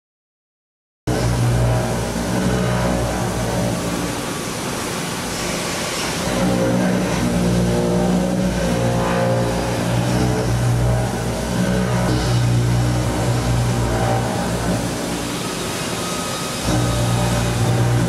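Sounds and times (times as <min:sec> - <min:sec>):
milling machine cutting hum: 0:01.1 - 0:18.0
coolant spray hiss: 0:03.0 - 0:10.1.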